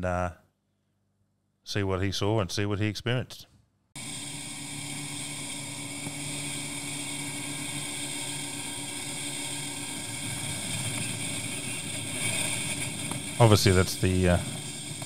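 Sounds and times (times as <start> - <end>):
boat engine running: 4.5 - 15.0.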